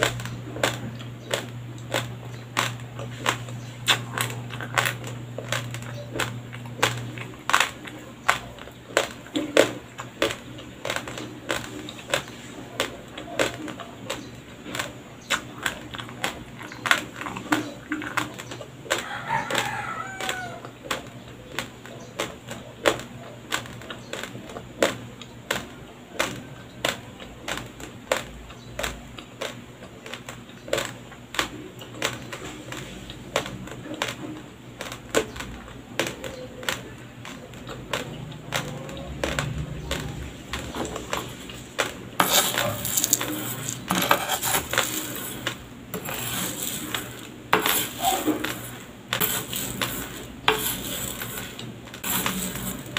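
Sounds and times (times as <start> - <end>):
dry rice crunching between teeth: 0.0 - 52.9
metal spoon scraping dry rice: 42.2 - 52.9.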